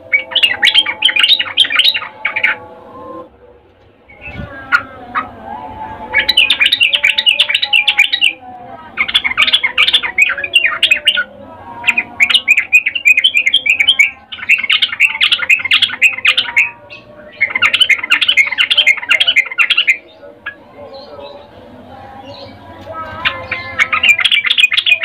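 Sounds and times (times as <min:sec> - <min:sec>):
bulbul bubbly chattering song: 0:23.1 - 0:25.0.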